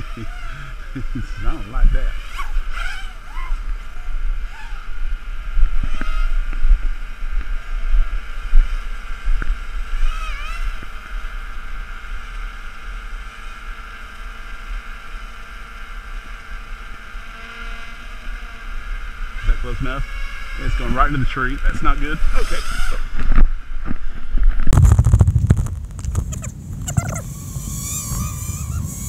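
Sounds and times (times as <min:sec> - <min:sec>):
drone motors buzzing: 0:00.0 - 0:29.0
wind on microphone: 0:22.2 - 0:29.0.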